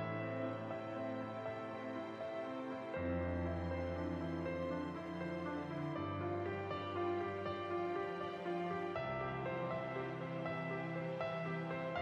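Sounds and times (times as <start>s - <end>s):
soft slow instrumental music: 0.0s - 12.0s.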